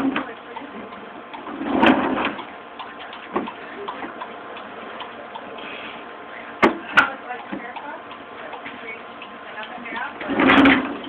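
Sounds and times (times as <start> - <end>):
barrel rushing rumble: 1.5 - 2.4, 10.1 - 11.0.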